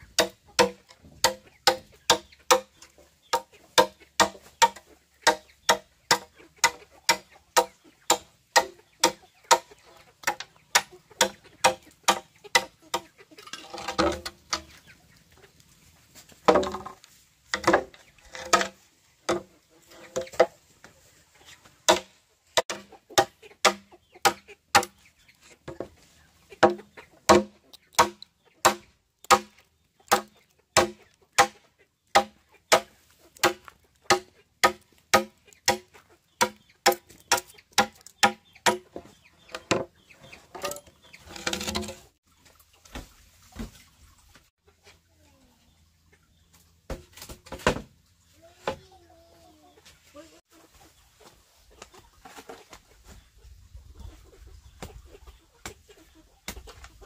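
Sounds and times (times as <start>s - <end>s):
chopping strokes: 26.6s - 29.5s, 30.1s - 31.6s, 32.2s - 38.8s.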